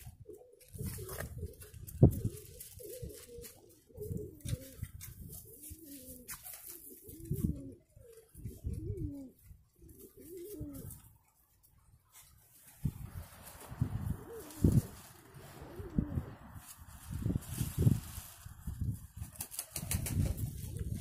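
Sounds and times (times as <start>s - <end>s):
pigeons cooing: 0.0s - 11.2s, 13.6s - 18.9s.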